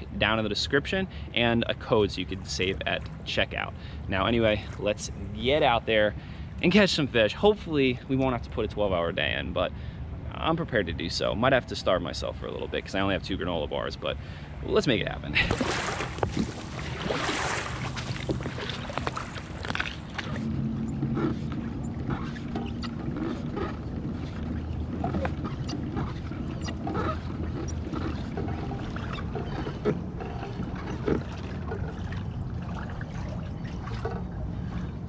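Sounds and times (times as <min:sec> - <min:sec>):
kayak pedal drive humming: 0:15.4 - 0:35.0.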